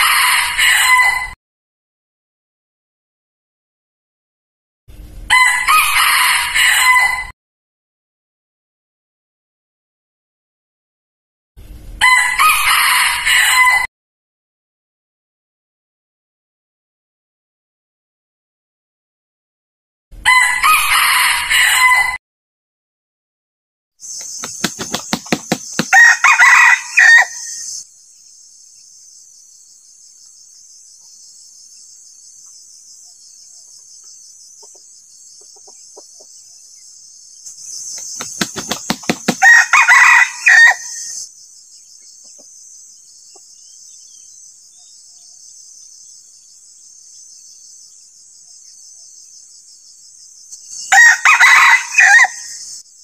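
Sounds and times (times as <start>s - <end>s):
rooster crowing: 0.0s - 1.4s, 5.3s - 7.3s, 12.0s - 13.9s, 20.2s - 22.2s, 25.1s - 27.8s, 38.9s - 41.2s, 50.9s - 52.6s
quick sharp beats: 24.2s - 26.0s, 38.2s - 39.4s.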